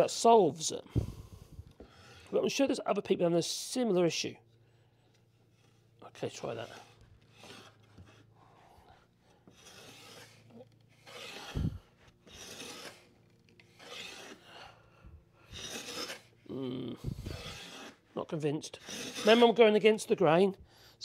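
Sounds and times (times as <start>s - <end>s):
hand plane rasping on wood: 6.4s - 8.7s, 9.4s - 13.1s, 13.7s - 14.8s, 15.4s - 16.4s, 17.0s - 18.1s, 18.7s - 19.6s.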